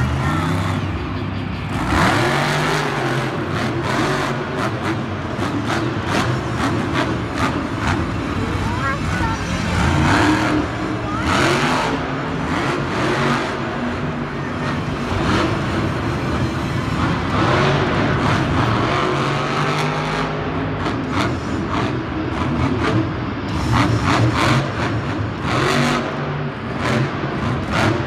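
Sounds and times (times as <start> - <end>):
truck engine revving: 0.0 - 28.0.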